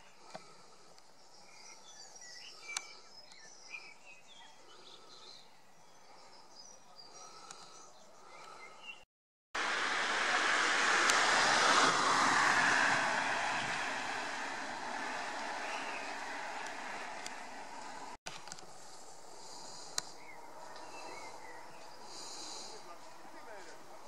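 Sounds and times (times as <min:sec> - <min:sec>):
faint small birds chirping: 0:00.0 - 0:09.1
car passing with tyre noise: 0:09.6 - 0:18.2.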